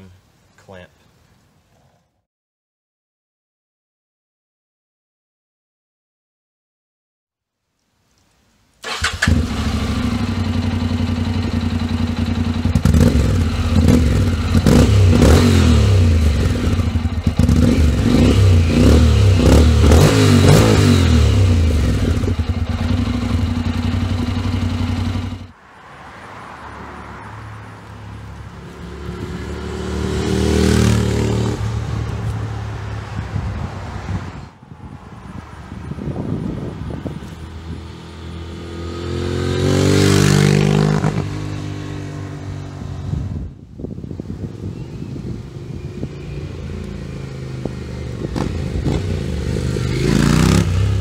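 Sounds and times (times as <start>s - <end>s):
road traffic: 8.1s - 51.0s
motorcycle engine idling and revving: 8.8s - 25.6s, 27.0s - 51.0s
motorcycle riding off: 8.8s - 25.6s, 27.5s - 34.4s, 36.1s - 51.0s.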